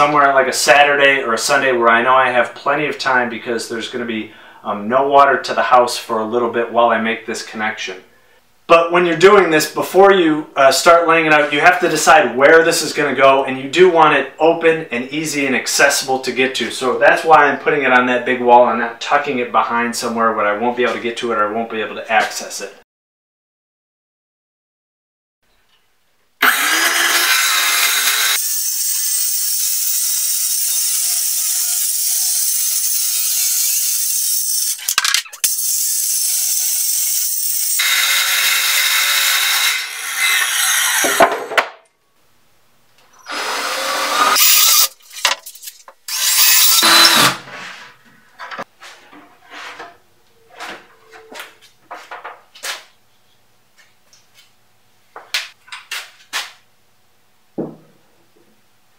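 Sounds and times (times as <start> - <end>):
circular saw cutting plywood: 26.4 - 41.5, 43.2 - 44.9, 46.1 - 47.5.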